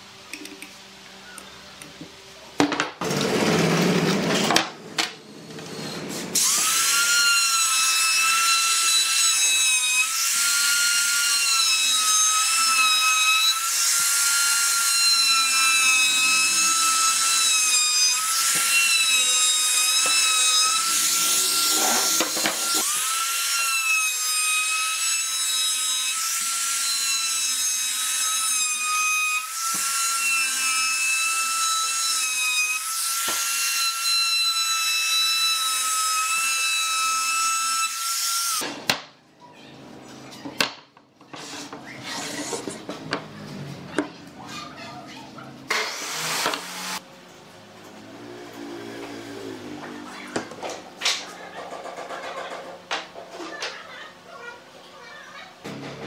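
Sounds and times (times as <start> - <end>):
trim router whining: 5.0 - 28.5.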